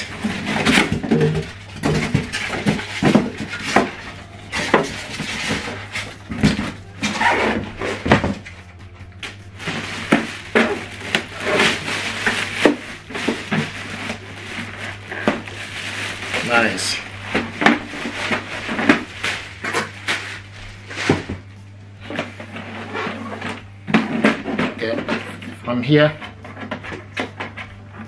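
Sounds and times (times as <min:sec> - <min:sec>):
plastic bag rustling: 0:00.0 - 0:08.5, 0:09.4 - 0:25.6
cardboard packaging rustling: 0:00.0 - 0:08.6, 0:09.2 - 0:25.6.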